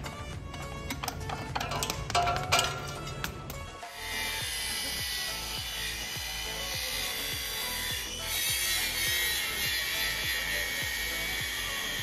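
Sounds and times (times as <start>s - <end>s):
background music with steady beat: 0.0s - 12.0s
power tool whirring: 3.8s - 12.0s.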